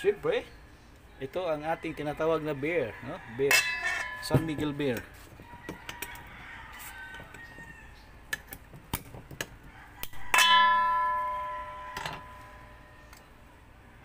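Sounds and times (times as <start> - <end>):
metal bowl clanging and ringing: 3.5 - 5.0, 10.2 - 13.1.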